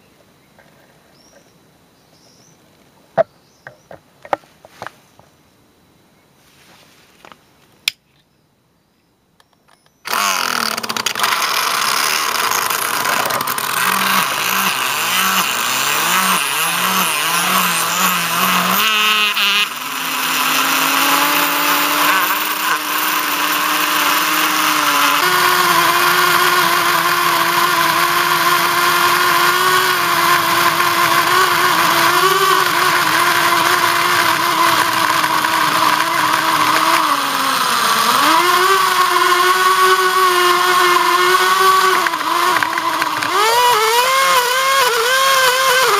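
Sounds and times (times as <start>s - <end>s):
electric motor whining: 10.1s - 45.9s
tyres spinning on asphalt: 10.1s - 45.9s.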